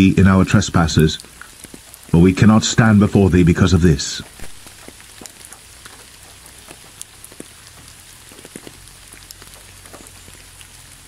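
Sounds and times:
steady rain hiss: 0:00.0 - 0:11.0
single raindrops clicking: 0:01.2 - 0:02.2, 0:04.2 - 0:11.0.

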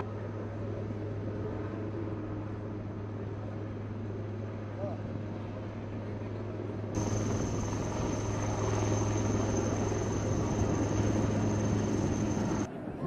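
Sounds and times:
helicopter rotor hum: 0:00.0 - 0:12.7
high turbine whine: 0:06.9 - 0:12.9.

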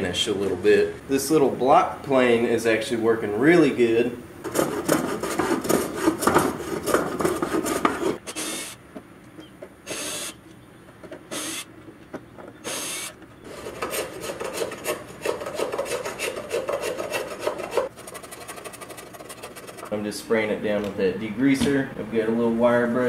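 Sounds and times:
scraping strokes on wood: 0:04.4 - 0:08.7, 0:12.6 - 0:20.0
hand plane shaving wood: 0:04.5 - 0:08.2, 0:13.5 - 0:20.0
short hissing bursts: 0:09.9 - 0:10.4.

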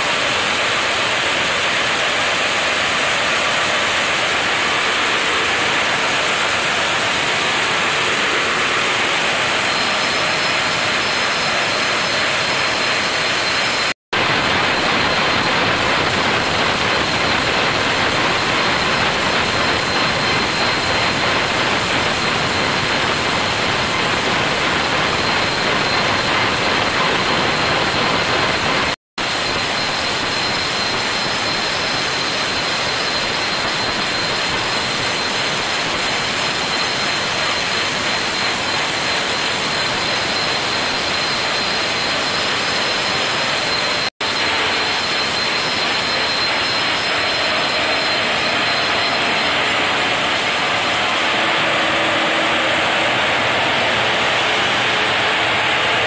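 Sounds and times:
band saw cutting log: 0:43.8 - 0:55.4.

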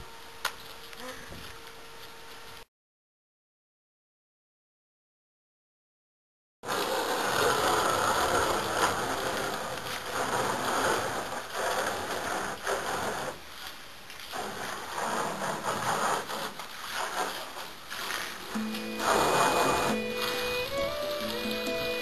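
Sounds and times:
water splashing and sloshing: 0:06.8 - 0:22.0.

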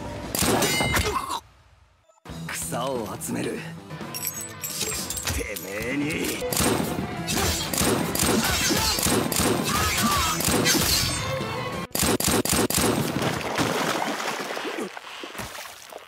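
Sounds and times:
gunshots: 0:00.3 - 0:01.0, 0:06.4 - 0:11.2, 0:11.9 - 0:13.8.

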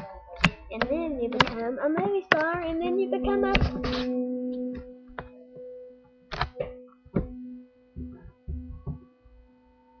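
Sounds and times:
electrical hum: 0:00.0 - 0:10.0
knocks and thuds: 0:08.0 - 0:09.0.

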